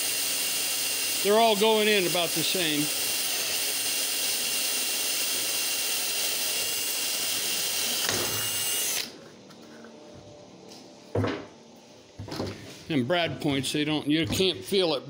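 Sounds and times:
cordless drill boring into wood: 0.0s - 9.2s.

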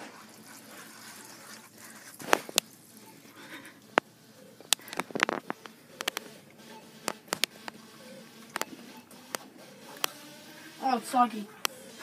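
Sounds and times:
sharp clicks and light taps: 3.9s - 6.3s.

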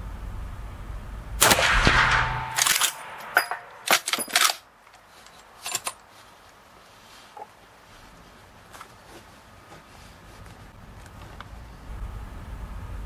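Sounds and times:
rifle shot echoing: 1.4s - 3.8s.

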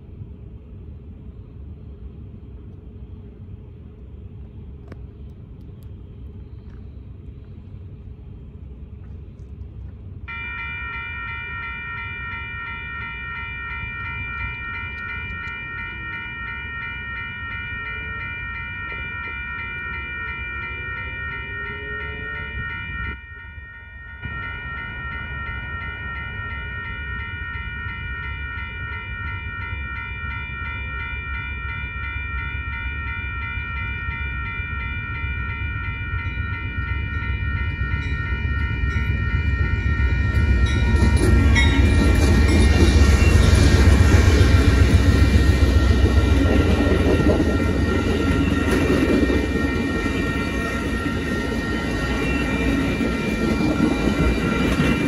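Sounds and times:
railroad crossing bells ringing: 10.1s - 55.0s
diesel locomotive rumble: 35.1s - 55.0s.

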